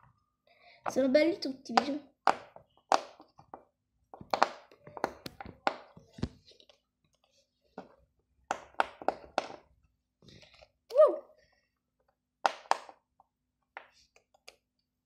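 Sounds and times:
plastic toys tapping on wood: 0:01.7 - 0:06.3.

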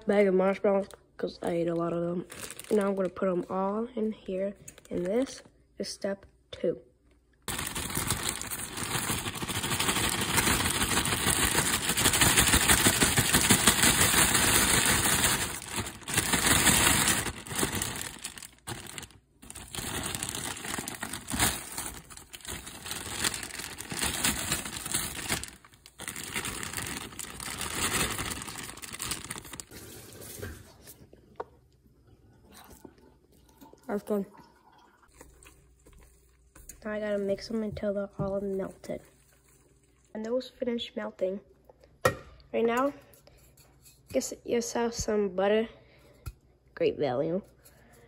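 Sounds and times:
plastic bag crinkling: 0:02.2 - 0:03.3, 0:07.5 - 0:30.7.

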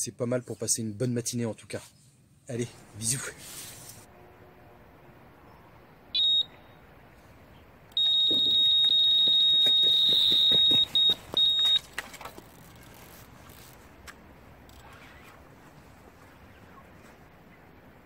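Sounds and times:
bite alarm continuous tone: 0:07.9 - 0:12.0
short high beep: 0:08.0 - 0:11.8.

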